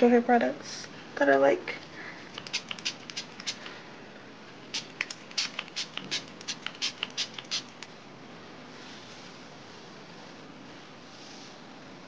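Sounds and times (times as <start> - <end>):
hands crackling through hair: 2.3 - 3.7.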